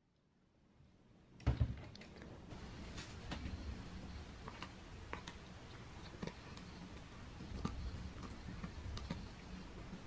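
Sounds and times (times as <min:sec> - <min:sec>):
faint low hum: 0:00.0 - 0:10.0
teeth clicking on chew bone: 0:04.5 - 0:09.5.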